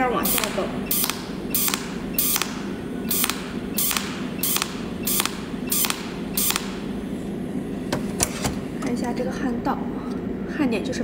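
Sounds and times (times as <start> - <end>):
welding arc crackling bursts: 0.0 - 7.0.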